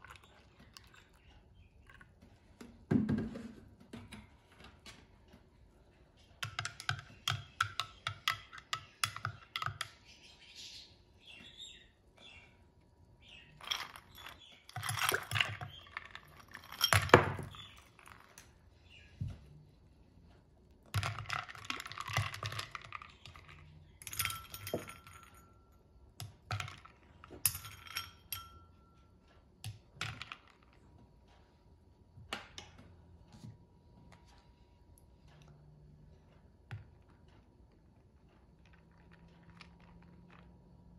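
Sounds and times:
ice cubes clinking in glass: 13.6 - 18.4, 21.0 - 25.4.

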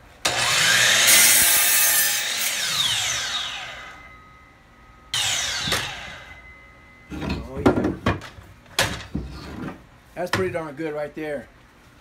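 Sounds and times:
miter saw cutting wood: 0.2 - 4.1, 5.1 - 6.5
saw blade winding down whine: 0.2 - 7.1.

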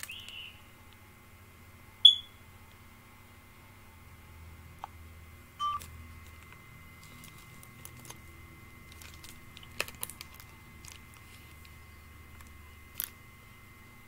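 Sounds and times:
low steady hum: 0.0 - 14.0
electronic beep: 2.0 - 2.4, 5.6 - 5.8.

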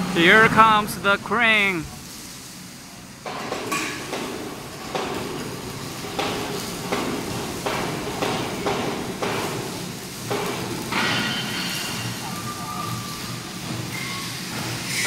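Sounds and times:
overhead crane running: 0.0 - 2.1
steel beam knocking: 3.2 - 11.6.

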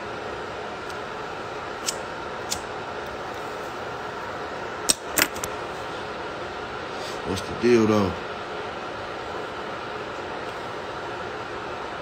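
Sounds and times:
lighter clicking: 1.8 - 2.7.

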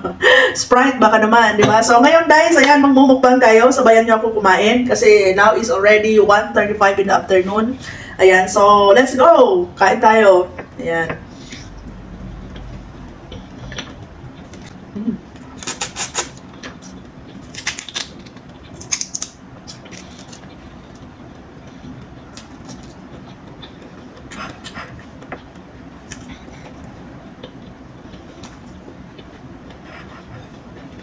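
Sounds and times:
prawn shells crackling: 17.4 - 20.5.

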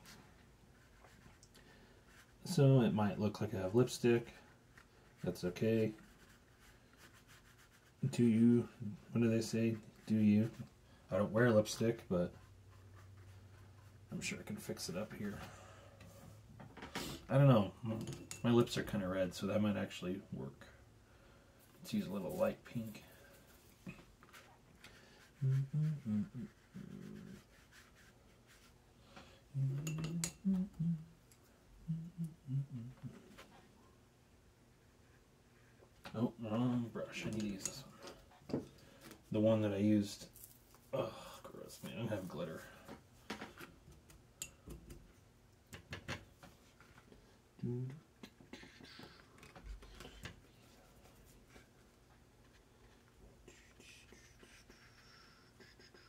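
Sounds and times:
brush on paper: 0.0 - 2.6, 4.3 - 8.2, 12.3 - 14.0, 22.0 - 28.8, 48.5 - 49.4, 50.7 - 56.0
man humming: 25.4 - 27.1, 29.5 - 31.2, 31.8 - 33.4, 47.6 - 48.2.

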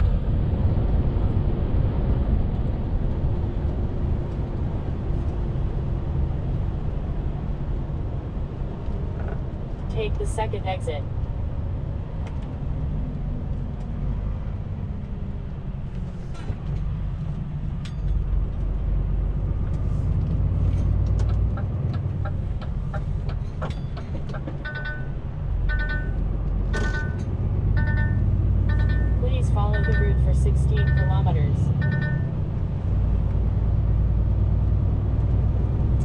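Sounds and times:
truck engine and road rumble: 0.0 - 36.0
short electronic beeps: 24.6 - 26.2, 27.8 - 32.3.

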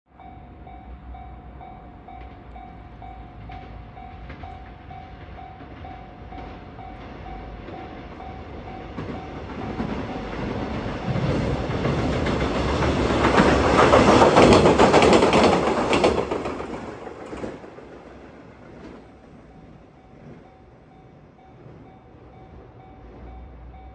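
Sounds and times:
diesel railcar passing: 0.1 - 23.9
wheels clicking over rail joints: 2.1 - 20.5.

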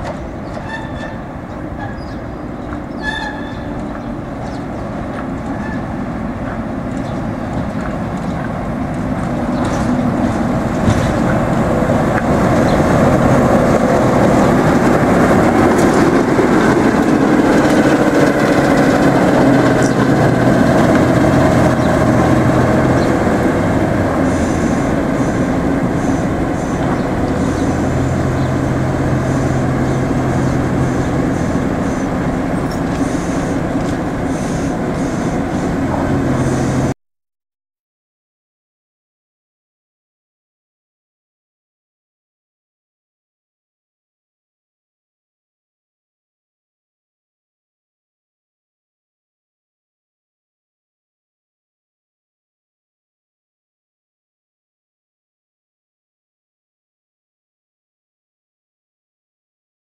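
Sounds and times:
diesel locomotive engine running: 0.0 - 37.0.

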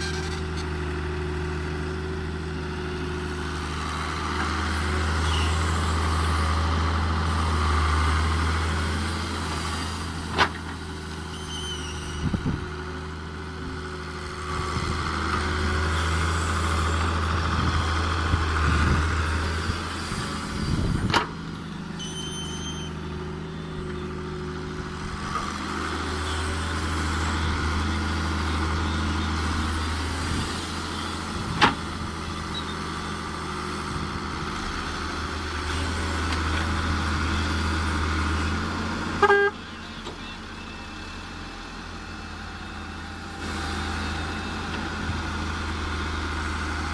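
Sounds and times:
diesel engines running: 0.0 - 46.9.

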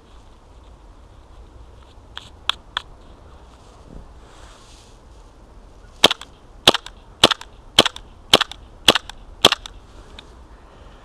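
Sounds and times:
airsoft pistol shots: 6.0 - 9.7.

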